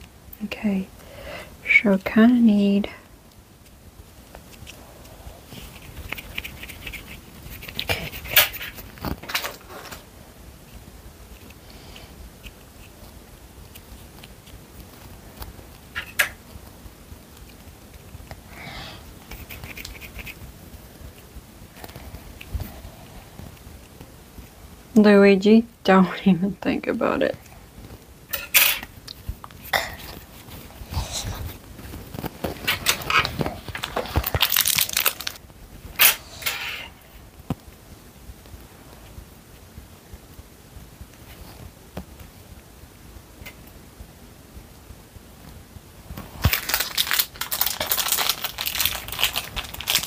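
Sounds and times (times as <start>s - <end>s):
plastic packaging crinkling: 31.5s - 35.4s, 46.2s - 50.0s.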